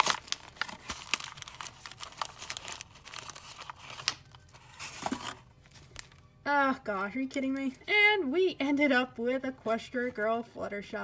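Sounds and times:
plastic packaging tearing and crinkling: 0.0s - 6.2s.

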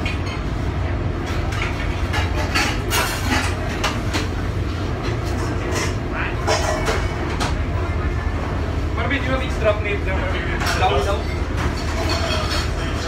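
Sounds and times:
ventilation hum and rumble: 0.0s - 13.0s
metal pans and dishes clattering: 1.2s - 4.4s, 5.0s - 7.6s, 10.5s - 13.0s.

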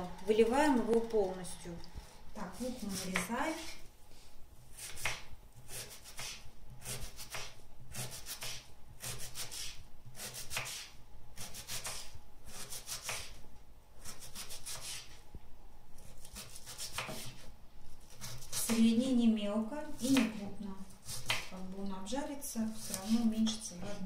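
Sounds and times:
knife dicing onion on wooden board: 4.7s - 13.4s, 14.0s - 15.1s, 16.1s - 17.4s, 18.1s - 18.9s, 19.9s - 20.4s, 21.0s - 21.6s, 22.7s - 24.0s.

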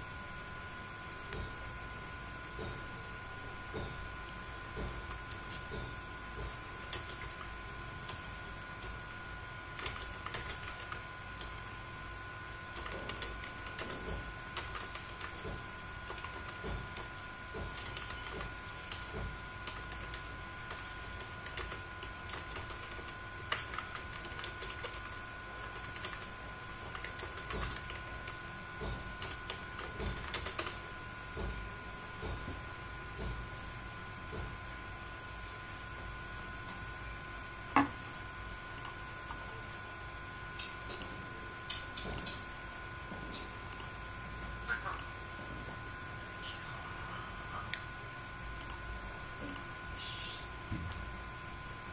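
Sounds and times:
keyboard typing: 6.4s - 9.0s, 9.7s - 11.6s, 12.7s - 30.8s, 40.6s - 42.5s
faint high whine: 30.6s - 51.9s.

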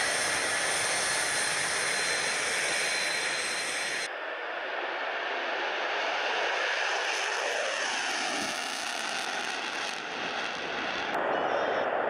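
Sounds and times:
jet whine falling in pitch: 0.0s - 4.1s, 7.3s - 11.8s
jet engine roar: 0.0s - 12.0s.

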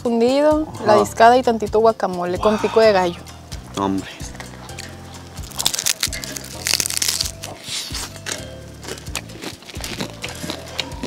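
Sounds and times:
background music: 0.0s - 11.0s
crunchy chewing: 4.7s - 11.0s.

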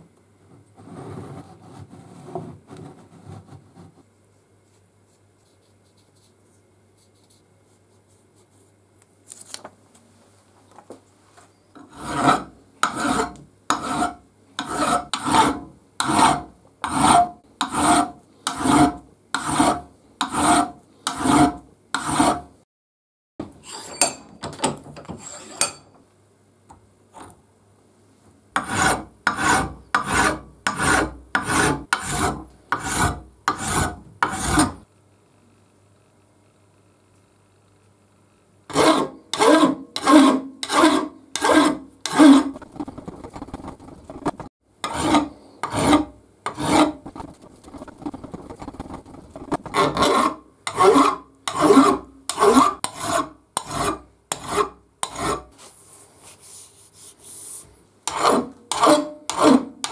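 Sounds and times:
file rasping on aluminium: 11.8s - 22.5s, 25.2s - 25.8s, 28.6s - 34.8s, 38.7s - 55.5s, 58.0s - 59.9s
light rubbing: 41.5s - 50.3s.

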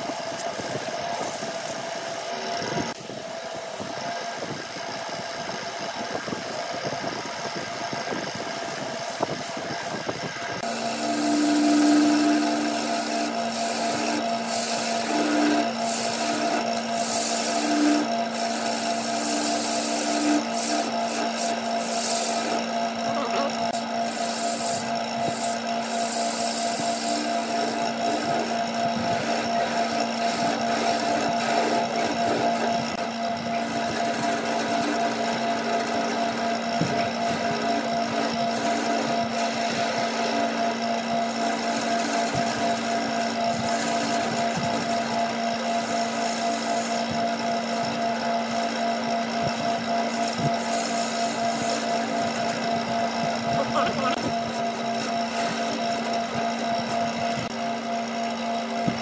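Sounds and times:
lathe humming: 0.0s - 59.0s
on-and-off tool tone: 0.0s - 59.0s
sandpaper rubbing spinning wood: 0.0s - 59.0s
turning tool cutting wood: 0.0s - 59.0s.

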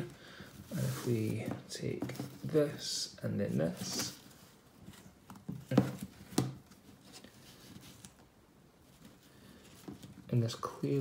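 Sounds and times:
ribbon rustling and scratching: 3.5s - 10.3s.

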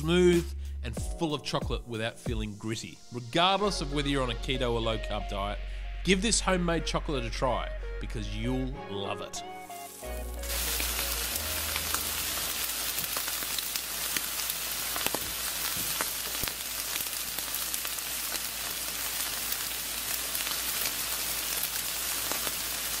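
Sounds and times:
steak sizzling on a grill: 9.8s - 23.0s.

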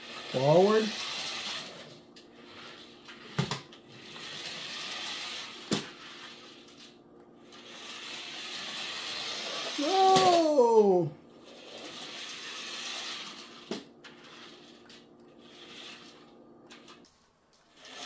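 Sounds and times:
toy truck motor whirring: 0.0s - 10.6s, 11.3s - 18.0s.

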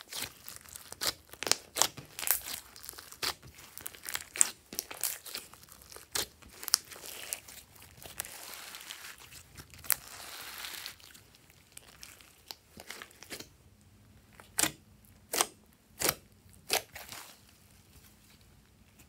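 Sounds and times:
slime crackling and popping: 0.0s - 13.5s.

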